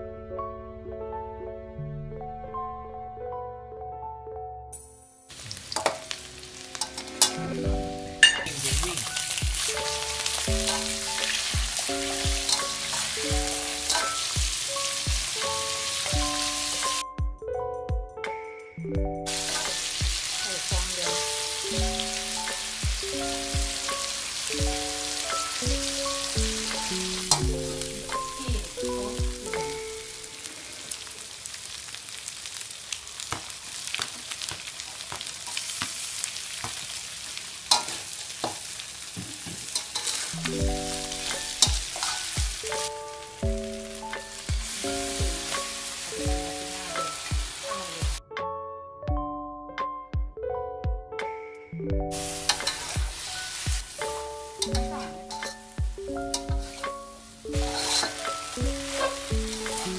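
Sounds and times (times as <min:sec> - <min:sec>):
keyboard background music: 0:00.0 - 0:30.5, 0:40.0 - 0:59.9
spatula scraping and knocking wok: 0:05.3 - 0:07.5, 0:08.2 - 0:17.0, 0:19.3 - 0:29.8, 0:37.7 - 0:43.0, 0:52.1 - 0:59.9
food sizzling in a wok: 0:05.3 - 0:17.0, 0:19.2 - 0:48.2, 0:52.1 - 0:59.9.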